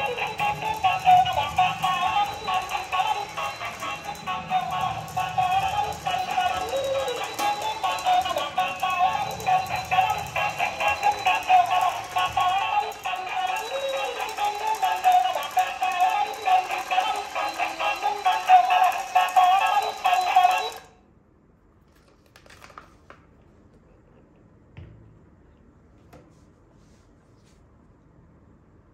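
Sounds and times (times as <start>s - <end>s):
electronic tune with synthetic singing: 0.0s - 20.9s.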